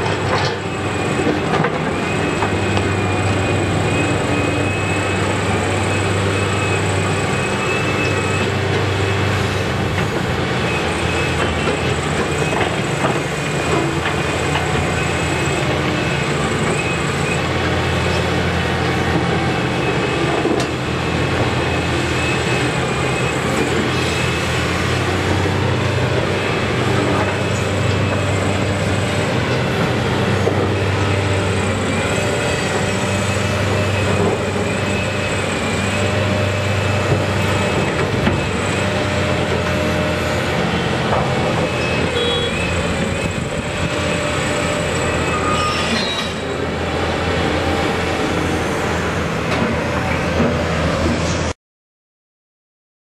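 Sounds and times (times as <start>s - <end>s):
excavator diesel engine running: 0.0s - 51.5s
high hydraulic whine: 29.4s - 50.2s
high squeaks: 45.2s - 46.5s.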